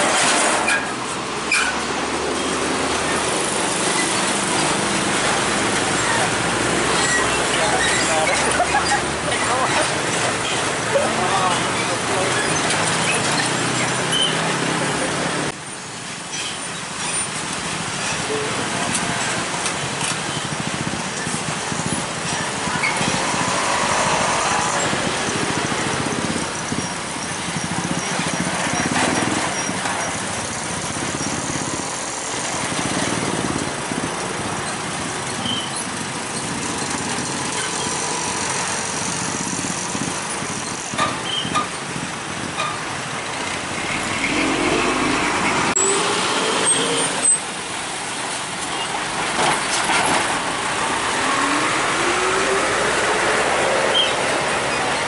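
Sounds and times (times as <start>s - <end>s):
traffic passing close by: 0.0s - 55.0s
engine revving pulling away: 43.4s - 47.4s, 50.3s - 55.0s.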